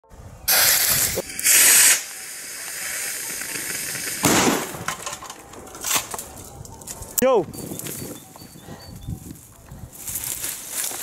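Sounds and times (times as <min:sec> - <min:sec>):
firework fuse hissing: 0:00.5 - 0:04.8.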